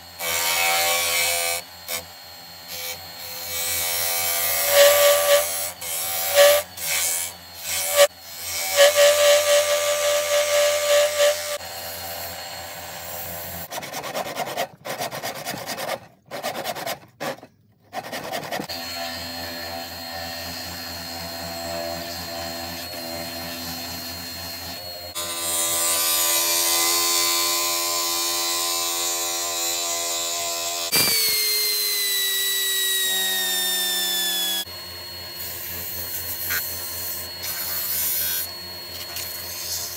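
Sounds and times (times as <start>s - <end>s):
hand sander whining: 0.0s - 39.9s
wood lathe running: 2.7s - 13.7s, 18.0s - 34.7s
turning tool scraping wood: 13.6s - 18.8s.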